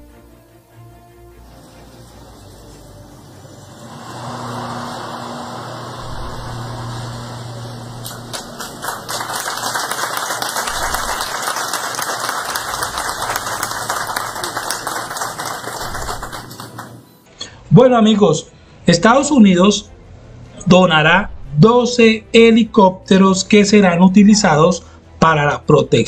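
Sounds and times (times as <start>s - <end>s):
audience applauding: 7.8s - 17.3s.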